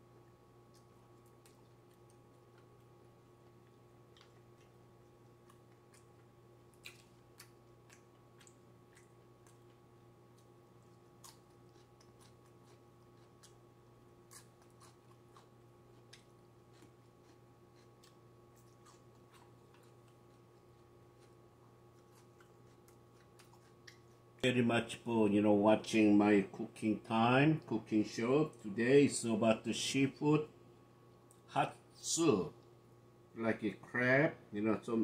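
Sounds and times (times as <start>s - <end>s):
person chewing: 0.6s - 24.4s.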